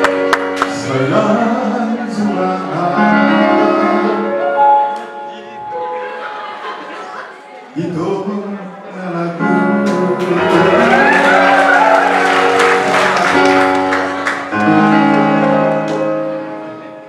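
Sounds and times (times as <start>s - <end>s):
keyboard chords: 0.0s - 17.0s
man singing through microphone: 0.7s - 4.4s, 7.7s - 11.8s, 14.5s - 16.2s.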